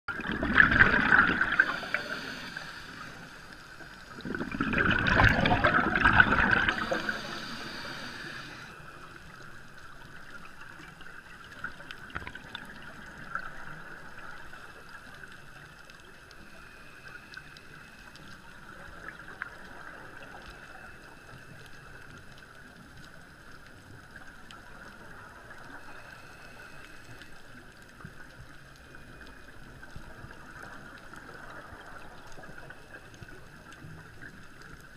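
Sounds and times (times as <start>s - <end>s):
regulator exhaling bubbles: 0.1s - 3.2s, 4.1s - 8.7s
faint underwater hiss: 0.1s - 34.9s.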